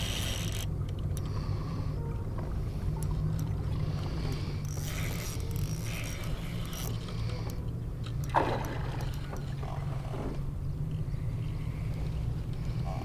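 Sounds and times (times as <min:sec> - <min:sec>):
fishing reel gears whirring: 0:00.0 - 0:01.8, 0:02.9 - 0:09.6
steady low rumble: 0:00.0 - 0:13.0.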